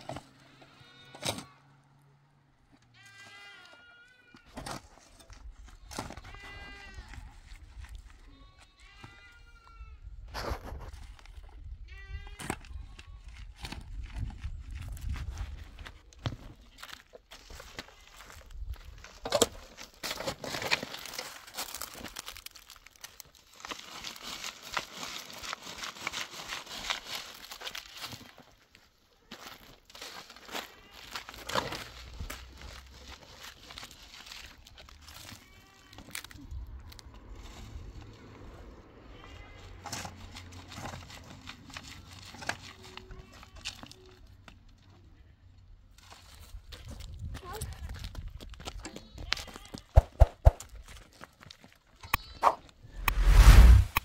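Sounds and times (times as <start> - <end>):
livestock bleating: 0.4 - 1.7, 2.9 - 4.5, 5.8 - 7.3, 8.2 - 10.0, 11.8 - 13.3, 35.2 - 36.1, 39.0 - 39.9, 49.0 - 50.0, 52.0 - 52.5
crinkling and rustling: 12.4 - 38.3, 39.8 - 44.8.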